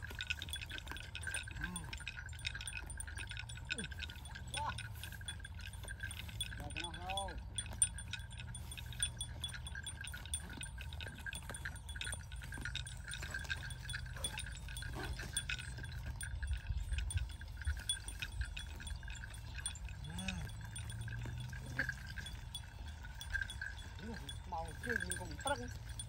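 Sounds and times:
cattle tearing and chewing grass: 0.0 - 26.0
low wind rumble: 11.2 - 26.0.

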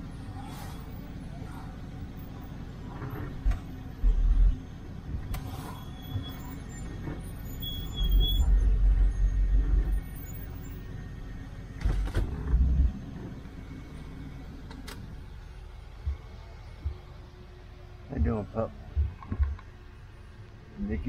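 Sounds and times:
car interior engine rumble: 0.0 - 21.0.

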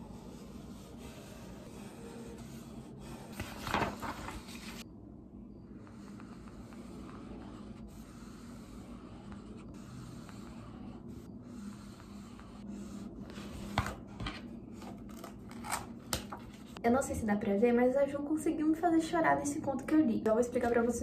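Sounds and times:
marker scratching on paper: 0.0 - 4.8, 5.8 - 14.2
faint room hum: 0.0 - 21.0.

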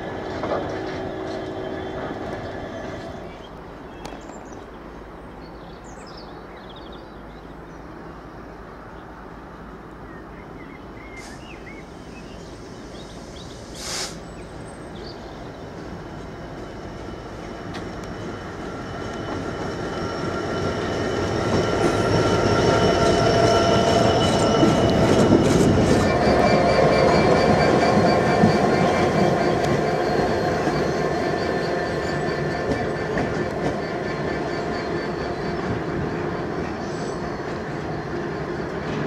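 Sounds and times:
diesel locomotive passing: 0.0 - 39.0
wagon wheels squealing: 18.7 - 38.8.

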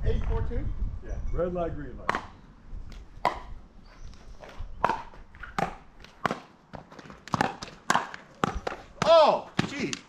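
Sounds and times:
paddle hitting plastic ball: 4.8 - 10.0.

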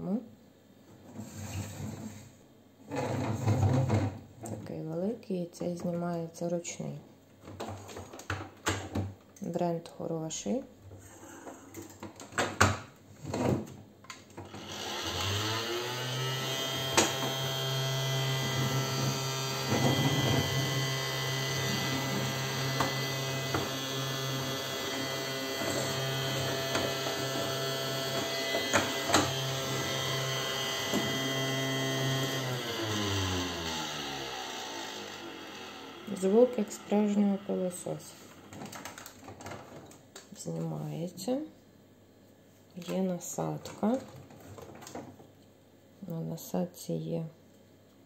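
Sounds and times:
toy vacuum cleaner humming: 14.5 - 38.8.

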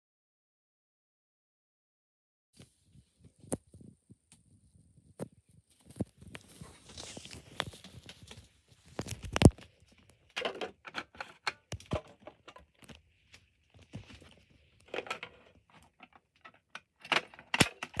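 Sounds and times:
clicks and rattles of handling: 5.2 - 18.0.

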